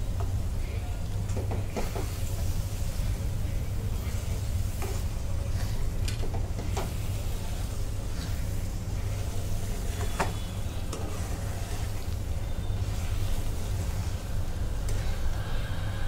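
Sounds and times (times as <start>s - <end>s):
faint sizzle: 0.0s - 16.0s
steady low rumble: 13.0s - 16.0s.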